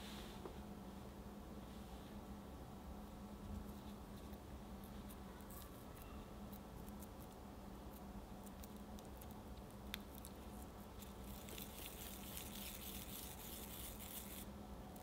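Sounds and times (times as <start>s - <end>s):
hands rubbing sticky paste: 8.5s - 14.4s.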